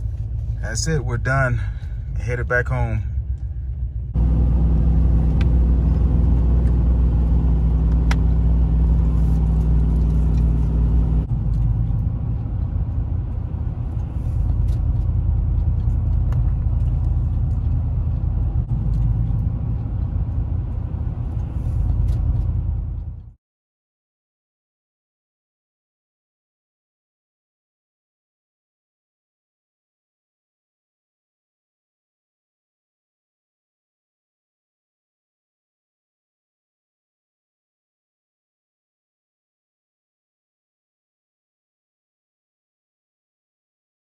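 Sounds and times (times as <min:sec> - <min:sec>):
car engine hum: 0:00.0 - 0:23.4
road noise: 0:00.0 - 0:23.4.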